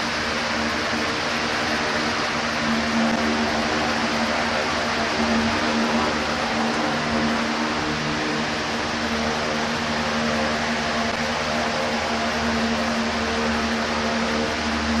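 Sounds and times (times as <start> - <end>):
electric fans whirring: 0.0 - 15.0
low hum: 0.0 - 15.0.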